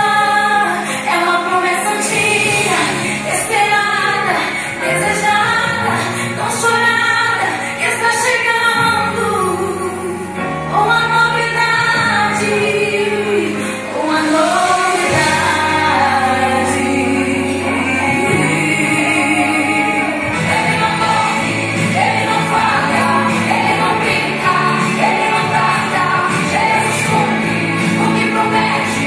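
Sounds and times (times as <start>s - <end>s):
woman singing: 0.0s - 29.0s
held bass notes: 14.2s - 29.0s.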